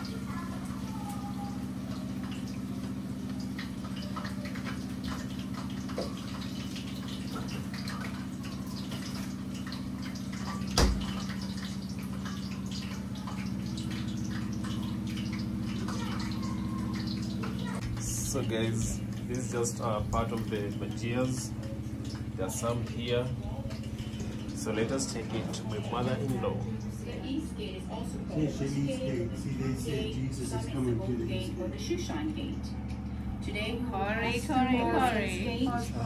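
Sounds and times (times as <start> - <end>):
crackling and popping oil: 0.0 - 27.5
food deep-frying in oil: 0.0 - 36.0.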